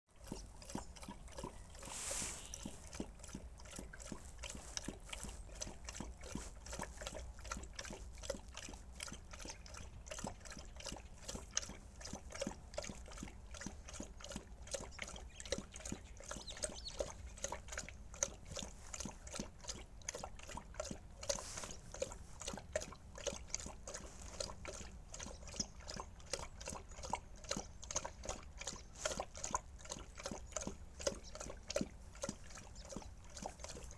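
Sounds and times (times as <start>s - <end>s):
dog lapping water: 0.1s - 33.9s
water splashes: 0.1s - 33.9s.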